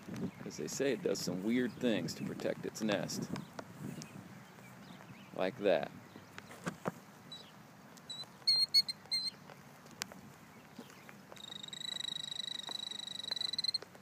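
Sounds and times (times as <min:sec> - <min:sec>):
killdeer calling: 0:07.2 - 0:09.4, 0:10.6 - 0:13.9.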